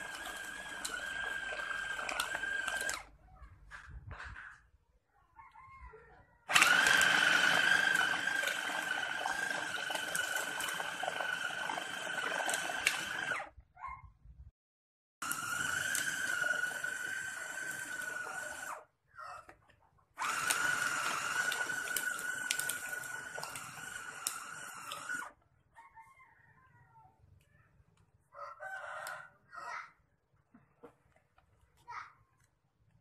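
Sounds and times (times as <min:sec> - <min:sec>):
electric food chopper whining: 0:00.0 - 0:03.1, 0:06.5 - 0:13.5, 0:15.2 - 0:18.9, 0:20.2 - 0:25.4.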